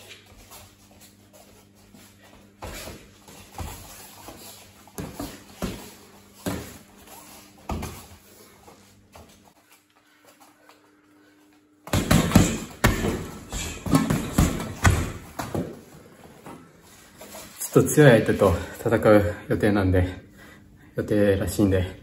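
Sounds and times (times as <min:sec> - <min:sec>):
punches thudding into punching bag: 0:11.9 - 0:15.7.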